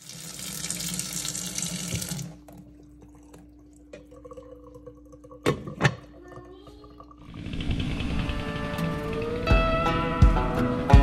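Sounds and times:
water pouring into metal pot: 0.0 - 2.5.

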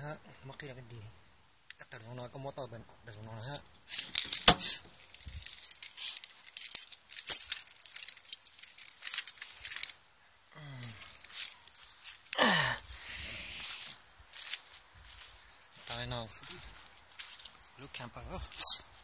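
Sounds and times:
keys jangling: 3.9 - 10.0, 10.8 - 12.4
metal clicks and rattles: 3.9 - 10.0.

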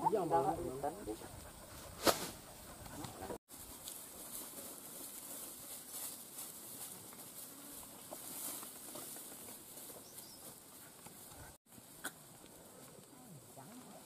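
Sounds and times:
footsteps in dry grass: 3.4 - 14.0.

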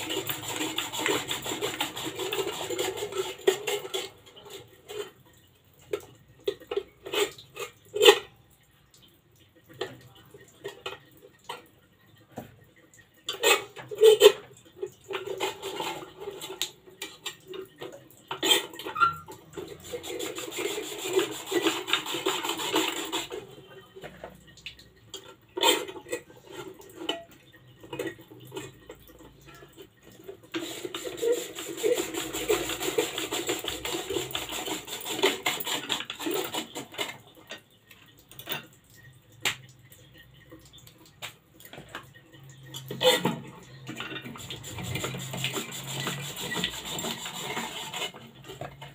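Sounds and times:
slicer blade rasping through potato: 0.0 - 3.8, 44.4 - 48.2.

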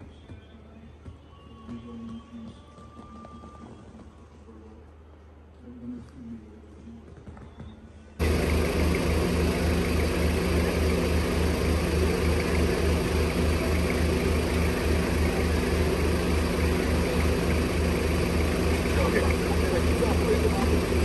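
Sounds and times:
van engine running: 8.2 - 21.0.

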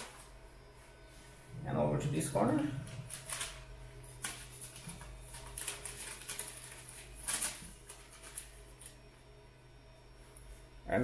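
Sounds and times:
low steady hum: 0.0 - 11.0
paper rustling: 2.9 - 9.0.

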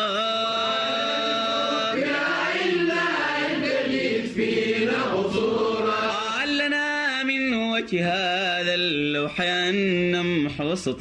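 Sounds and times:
voices singing a devotional chant: 0.0 - 8.7
choir-like backing voices: 0.4 - 6.6.

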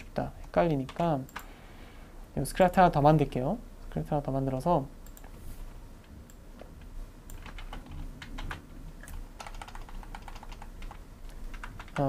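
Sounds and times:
keyboard keys clicking: 7.3 - 12.0.

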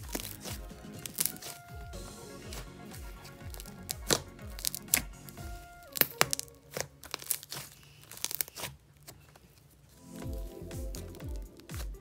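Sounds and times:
background music: 0.0 - 7.4, 10.0 - 12.0
slime clicking and popping: 3.5 - 5.1, 5.8 - 8.7.

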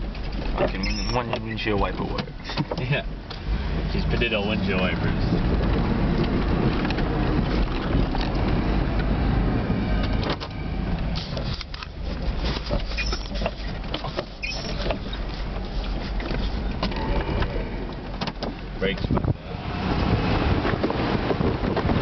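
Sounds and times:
knocks and clunks: 0.0 - 3.5, 10.0 - 19.4
truck engine rumbling: 0.0 - 22.0.

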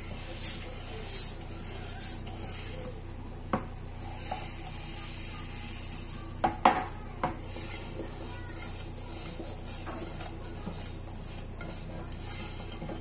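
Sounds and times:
grains pouring into pot: 7.5 - 13.0.

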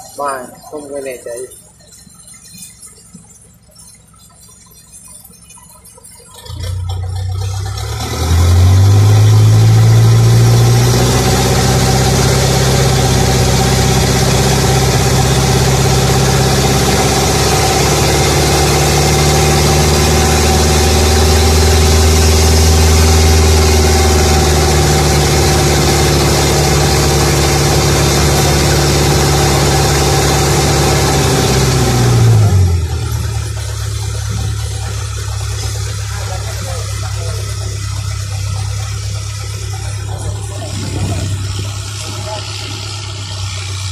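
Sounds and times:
boat engine running: 0.0 - 43.9
loud rushing hiss: 39.4 - 43.9.

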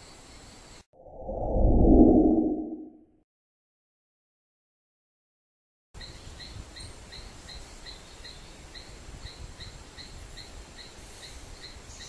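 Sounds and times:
low rumble: 1.0 - 3.0.

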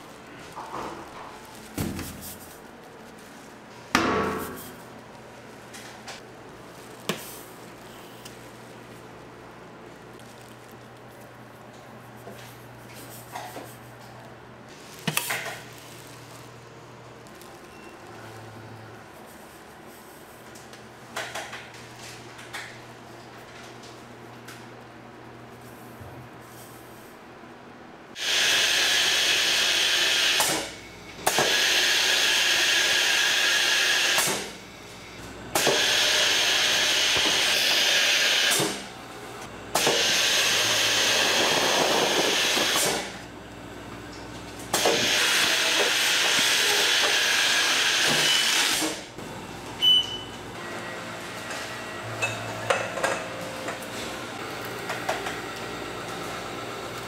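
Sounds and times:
factory machine hissing: 28.2 - 43.3, 44.7 - 49.4.

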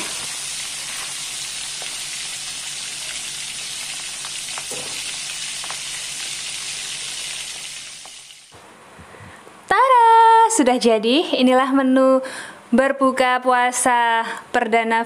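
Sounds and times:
fish deep-frying in oil: 0.0 - 8.5.

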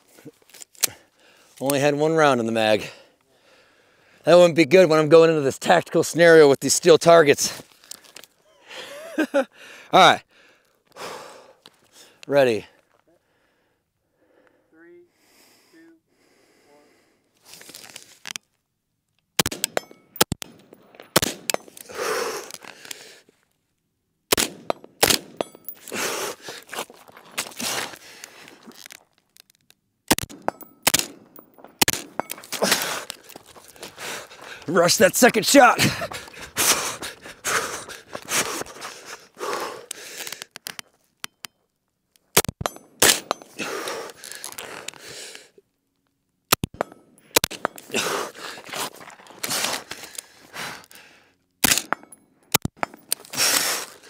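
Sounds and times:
heavy rapid breathing: 2.8 - 4.2, 8.5 - 12.2, 21.8 - 23.3, 25.6 - 26.9, 32.1 - 40.6, 43.4 - 45.6, 47.2 - 51.4, 53.0 - 54.0
sharp cracks: 19.4 - 23.0, 24.3 - 26.7, 27.3 - 41.6, 42.2 - 45.2, 46.5 - 50.4, 51.6 - 54.0
rifle shots in rapid succession: 24.3 - 25.4.

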